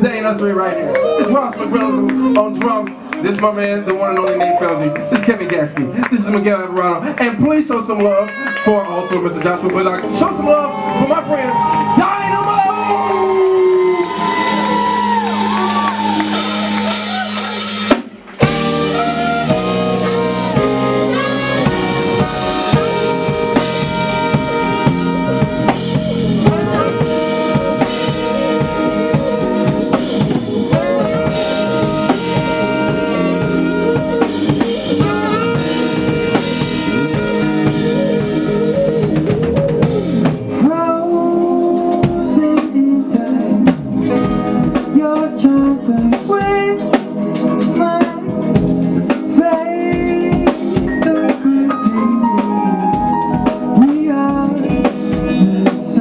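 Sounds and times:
electric guitars: 0.0s - 6.2s, 8.2s - 56.0s
bass: 0.0s - 56.0s
keyboards: 0.0s - 56.0s
saxophone section: 0.8s - 3.2s, 8.1s - 40.6s
drum kit: 9.3s - 56.0s.

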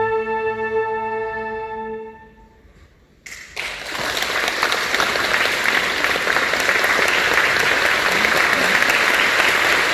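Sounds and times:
audience applauding: 3.3s - 9.9s.

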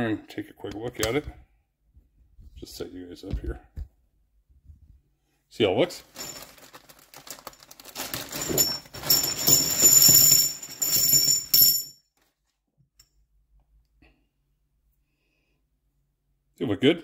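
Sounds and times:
plastic bag rustling: 6.0s - 11.6s
metal parts clinking together: 8.3s - 11.9s.

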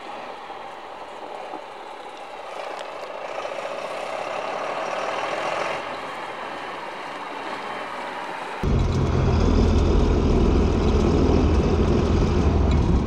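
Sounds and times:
tractor diesel engine running hard: 8.6s - 13.0s.

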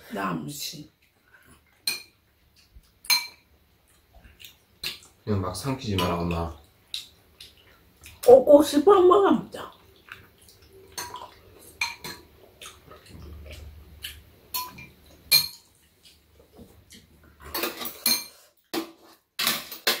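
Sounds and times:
utensils clinking on ceramic bowls: 3.0s - 3.5s, 11.0s - 12.3s, 14.5s - 15.7s, 17.4s - 20.0s.

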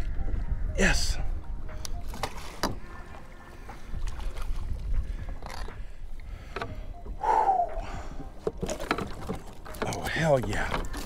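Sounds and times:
wind rumbling on microphone: 0.0s - 8.7s
water sloshing: 1.2s - 11.0s.

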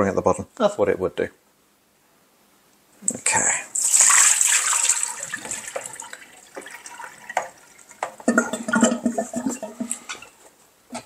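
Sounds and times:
water splashing into a sink: 3.7s - 10.0s
plastic parts knocking on sink: 7.3s - 10.0s.

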